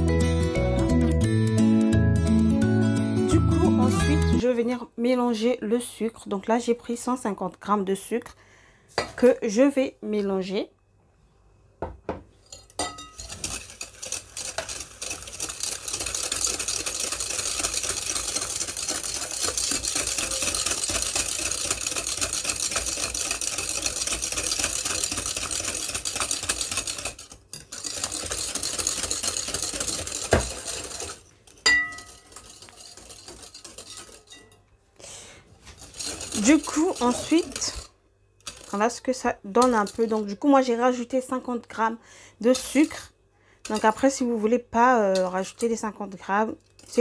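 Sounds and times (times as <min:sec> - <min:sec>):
whisk clattering in glass bowl: 0:12.5 - 0:34.6, 0:35.8 - 0:37.9, 0:39.6 - 0:40.4.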